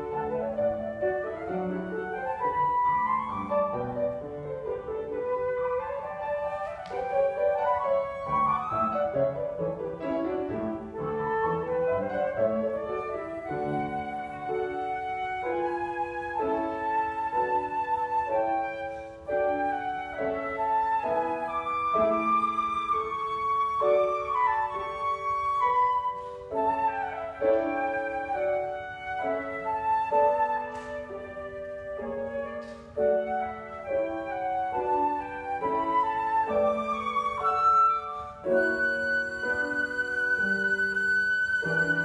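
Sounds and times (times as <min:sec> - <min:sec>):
flute melody: 0:00.0 - 0:42.0
piano accompaniment: 0:00.0 - 0:42.0.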